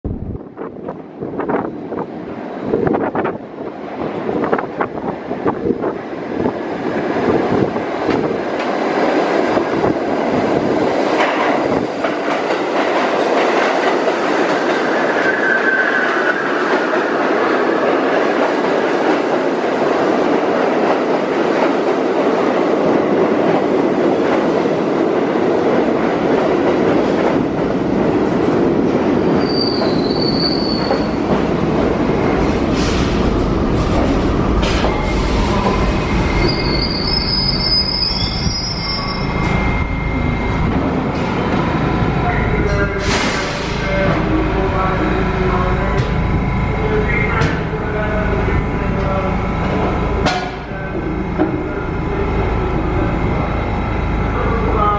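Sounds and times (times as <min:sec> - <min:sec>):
train wheels rumbling on rail: 0:00.1 - 0:54.9
train brake squeals: 0:15.0 - 0:16.6, 0:29.4 - 0:31.2, 0:34.9 - 0:40.6.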